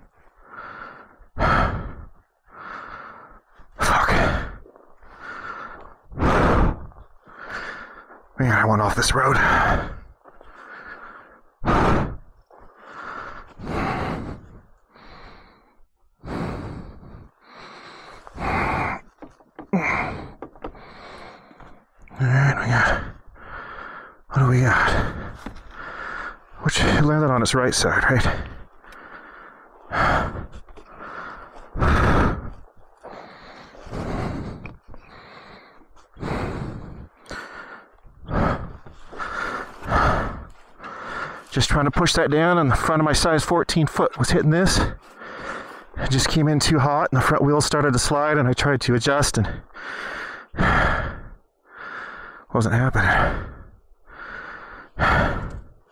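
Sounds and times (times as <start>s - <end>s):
man breathing hard: 0.0s - 41.7s, 44.0s - 46.8s, 49.2s - 55.9s
man sighing heavily: 17.8s - 26.4s.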